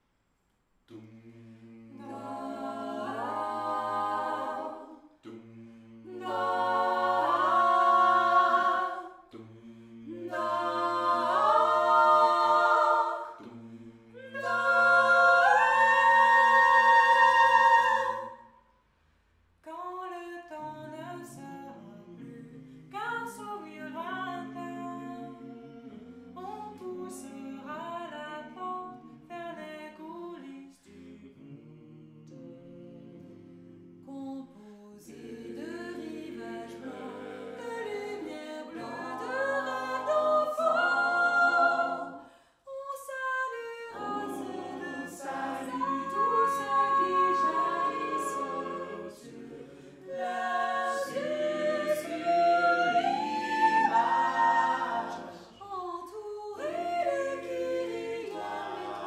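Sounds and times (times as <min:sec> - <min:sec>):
a cappella group singing: 0:00.9 - 0:18.8, 0:19.7 - 0:59.0
singers breathing: 0:42.2 - 0:42.7, 0:49.6 - 0:50.0.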